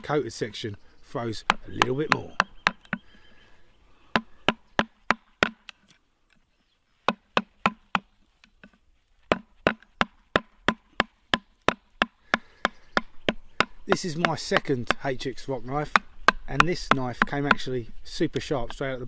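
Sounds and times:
wood striking knife spine: 0:01.4 - 0:03.0, 0:04.1 - 0:06.0, 0:07.1 - 0:15.1, 0:15.9 - 0:17.7.

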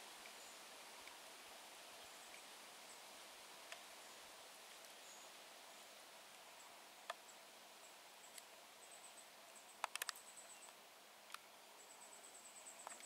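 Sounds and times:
sharp clicks: 0:09.8 - 0:10.2.

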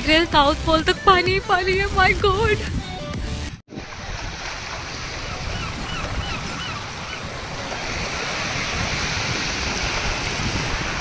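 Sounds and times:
sea surf breaking: 0:03.7 - 0:11.0
wind blowing across microphone: 0:03.7 - 0:11.0.

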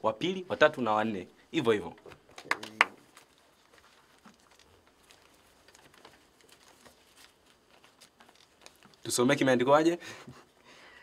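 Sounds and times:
paper crinkling: 0:02.3 - 0:09.5.

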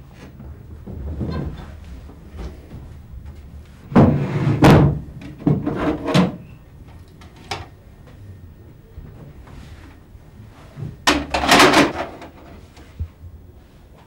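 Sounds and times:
sharp knocks and bangs: 0:03.9 - 0:06.4.

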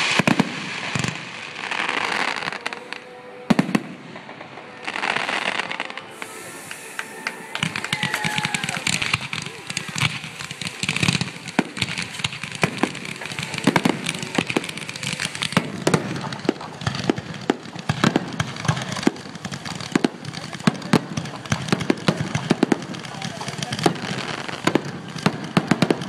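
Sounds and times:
fireworks bangs and crackles: 0:00.0 - 0:26.0
hiss of ground fountains: 0:05.6 - 0:25.0.

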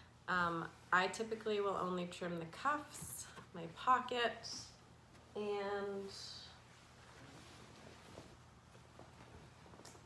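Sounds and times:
low room hum: 0:00.0 - 0:10.0
fabric rustling: 0:04.9 - 0:10.0.

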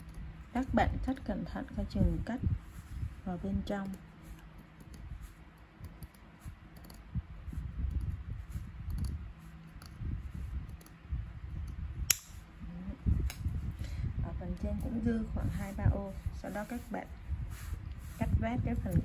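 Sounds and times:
small clicks: 0:05.8 - 0:07.0, 0:08.9 - 0:10.0, 0:10.6 - 0:11.0.

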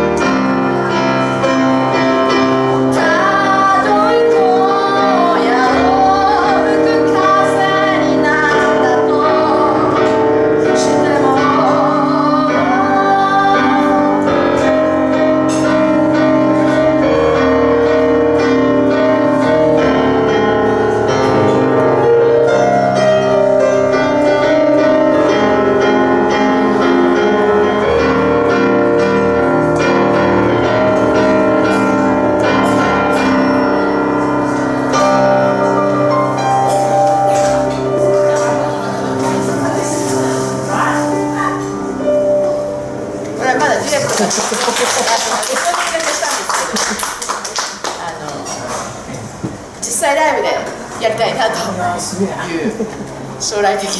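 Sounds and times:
grand piano slow chords: 0:00.0 - 0:45.2
woman singing wordless: 0:02.8 - 0:14.5.

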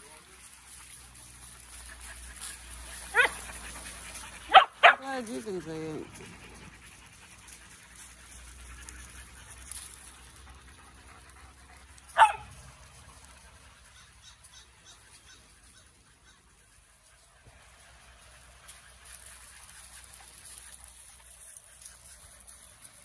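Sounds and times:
dog barking: 0:03.1 - 0:03.4, 0:04.5 - 0:05.1, 0:12.1 - 0:12.5.

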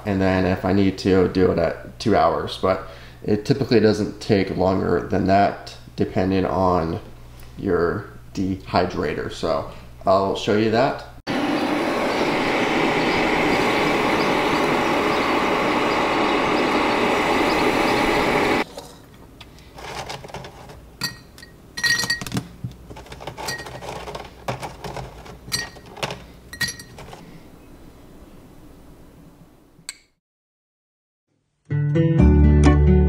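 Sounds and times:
food dehydrator fan running: 0:11.3 - 0:18.7, 0:22.8 - 0:26.4
jerky clinking into glass jar: 0:21.0 - 0:22.4, 0:23.2 - 0:24.8, 0:25.5 - 0:27.2.

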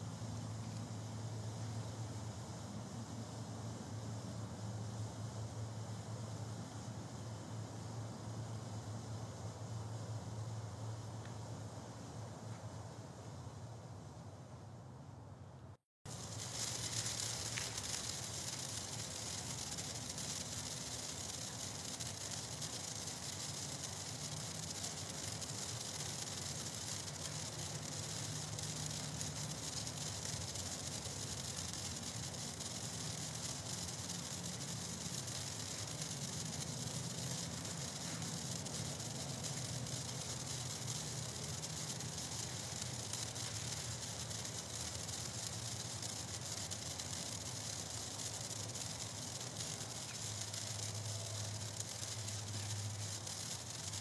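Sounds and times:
sparkler hissing: 0:16.1 - 0:54.0.

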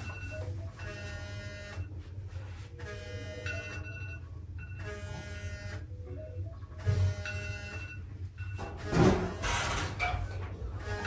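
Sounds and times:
electronic alarm beeping melody: 0:00.0 - 0:02.0, 0:02.9 - 0:08.7.

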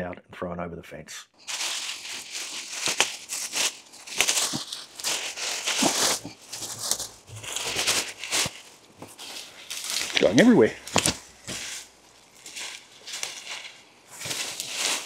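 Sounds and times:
plants rustling and crackling: 0:01.4 - 0:15.0
stems snapping: 0:01.6 - 0:11.8.

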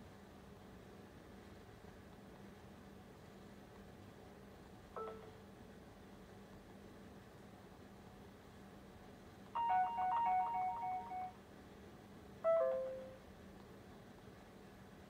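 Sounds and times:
faint steady hum: 0:00.0 - 0:15.0
electronic beeping melody: 0:09.6 - 0:11.3, 0:12.5 - 0:13.2
falling two-note chime: 0:09.6 - 0:11.3.

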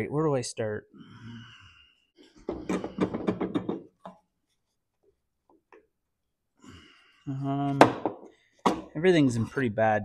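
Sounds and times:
metallic rattling knocks: 0:02.5 - 0:04.0.

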